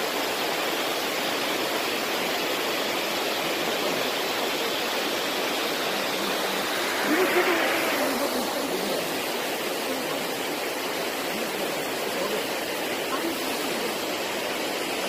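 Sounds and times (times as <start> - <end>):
waterfall rushing over rocks: 0.0 - 15.0.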